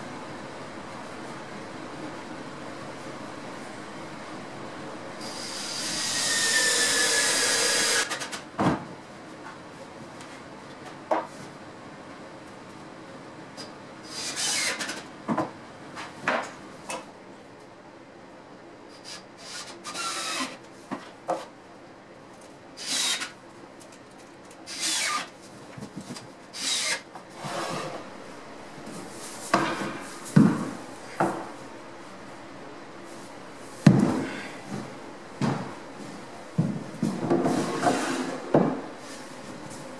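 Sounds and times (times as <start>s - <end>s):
scraping and rubbing on wood: 37.0s - 38.6s.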